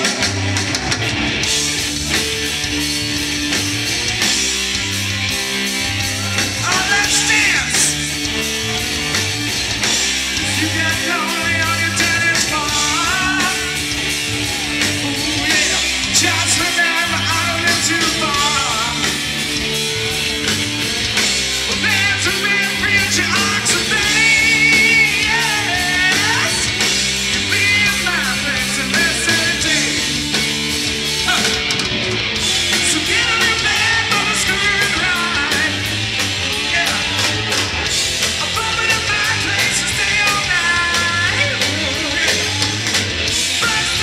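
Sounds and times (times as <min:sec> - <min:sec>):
live rock band playing: 0:00.0 - 0:44.0
person singing: 0:10.3 - 0:19.2, 0:21.7 - 0:30.2, 0:32.6 - 0:44.0.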